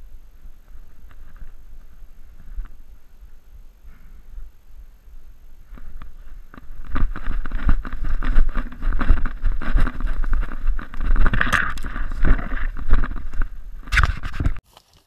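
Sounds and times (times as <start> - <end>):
branches brushing against camera: 0.0 - 3.4, 5.1 - 15.0
wind on microphone: 0.0 - 14.6
footsteps: 5.6 - 15.0
twigs snapping: 5.7 - 15.0.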